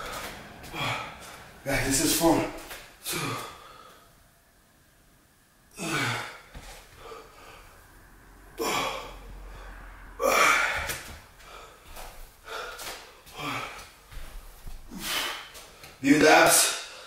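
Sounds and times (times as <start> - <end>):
man gasping breaths: 0.0 - 1.6, 3.0 - 4.2, 5.8 - 7.8, 8.6 - 16.0.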